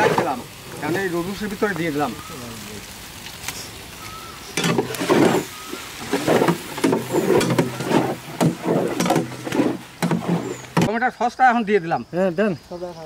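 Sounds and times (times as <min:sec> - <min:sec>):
metal spatula scraping steel pan: 0:04.6 - 0:10.8.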